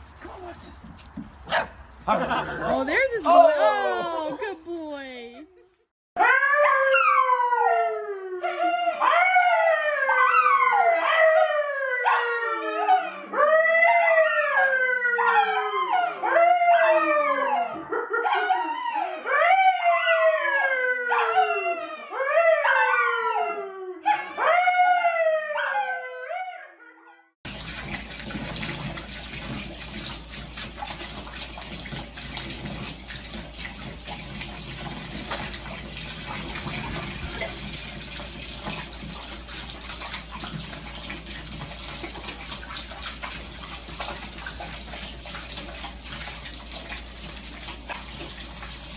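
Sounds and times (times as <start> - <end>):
man howling: 2.1 - 4.6
dog howling: 6.2 - 27.0
tap running into bathtub: 27.5 - 48.9.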